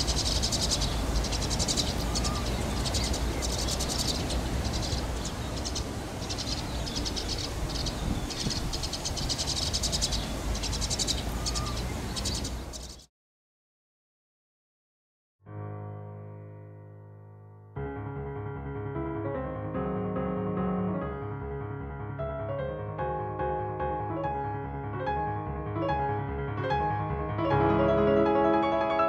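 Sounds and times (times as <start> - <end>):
animal chirping trills: 0.0 - 13.0.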